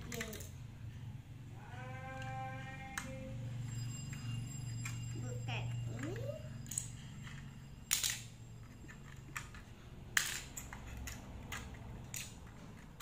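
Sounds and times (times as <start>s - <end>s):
plastic toy bricks clicking: 0.0s - 0.5s, 6.0s - 13.0s.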